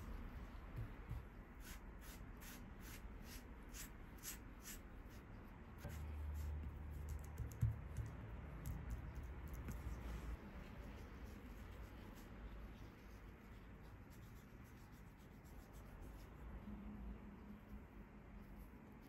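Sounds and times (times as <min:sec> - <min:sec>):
pastry brush swishing on dough: 0:09.0 - 0:16.6.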